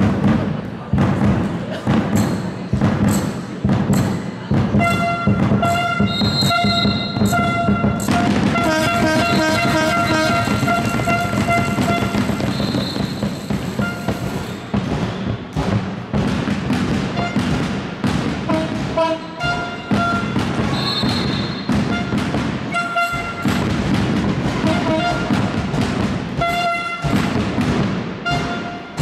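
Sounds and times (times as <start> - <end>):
sports hall din: 0.0 - 29.0
shoe squeaks: 4.8 - 15.4, 19.2 - 22.1.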